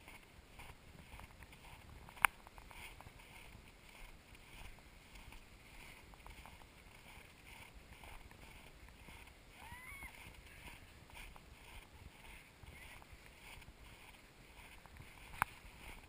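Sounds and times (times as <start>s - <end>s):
faint squeal: 9.6s - 10.6s.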